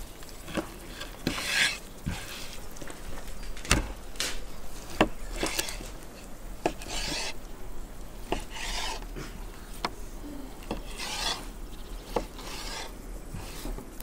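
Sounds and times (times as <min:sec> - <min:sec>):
knife slicing meat: 0:08.3 - 0:09.0, 0:10.7 - 0:11.5.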